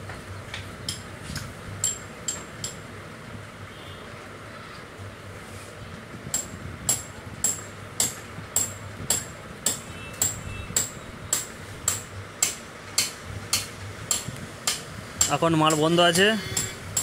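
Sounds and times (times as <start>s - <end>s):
sharp metallic taps: 6.3s - 17.0s.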